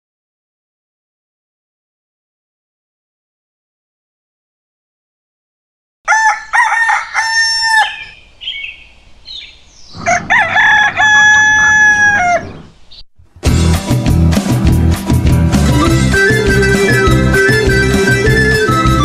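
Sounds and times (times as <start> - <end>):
rooster crowing: 6.1 - 8.2, 10.0 - 12.7
short higher bird calls: 7.2 - 10.2
strummed guitar music: 13.4 - 19.0.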